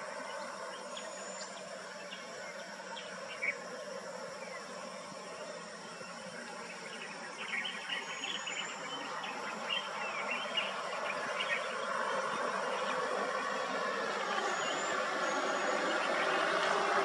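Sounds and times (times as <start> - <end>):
insects buzzing: 0.0 - 17.0
vehicle engine: 10.7 - 17.0.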